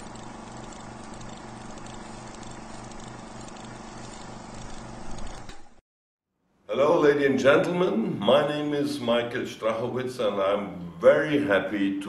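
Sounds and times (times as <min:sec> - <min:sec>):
pulsing low hum: 0:00.0 - 0:05.8.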